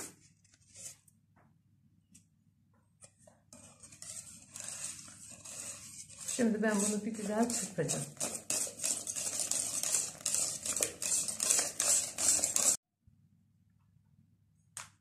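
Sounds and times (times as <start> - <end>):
whisk beating in metal pot: 3.5 - 12.8.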